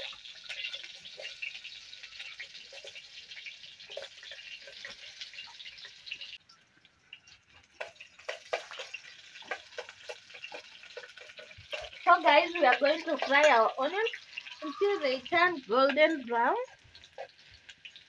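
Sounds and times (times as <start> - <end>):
spoon stirring a pot: 0.0 - 6.0, 7.2 - 15.0
onions sizzling in hot oil: 0.0 - 18.0.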